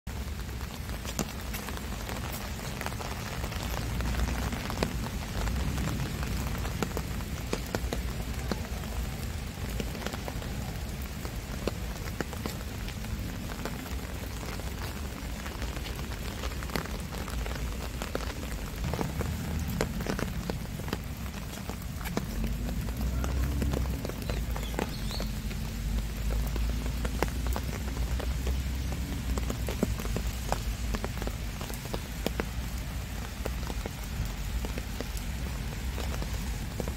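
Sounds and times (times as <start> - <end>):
rain falling: 0.1 - 36.9
raindrops ticking: 0.1 - 36.9.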